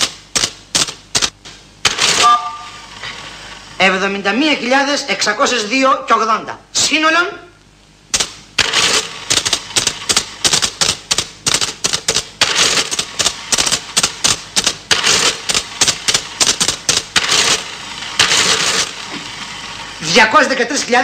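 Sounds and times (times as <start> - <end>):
mechanical clicking and clattering: 0.0 - 2.1, 8.1 - 19.1.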